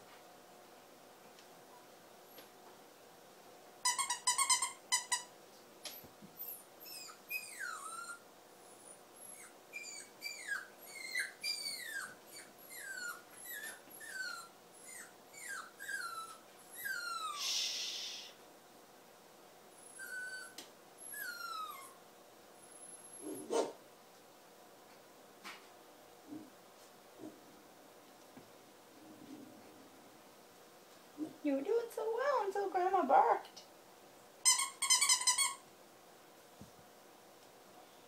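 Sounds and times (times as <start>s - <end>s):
puppy whining: 3.8s - 5.3s, 5.9s - 17.7s, 19.7s - 23.8s.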